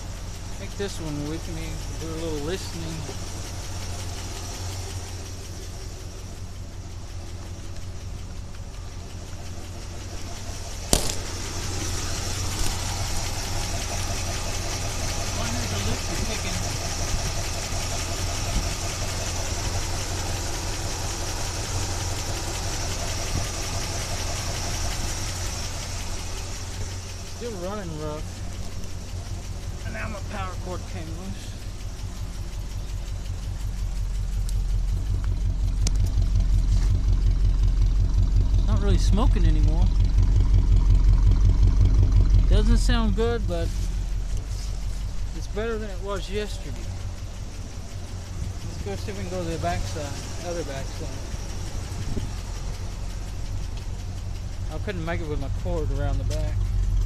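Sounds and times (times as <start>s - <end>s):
car engine idling rough: 0.0s - 57.0s
sharp click: 10.9s - 11.4s.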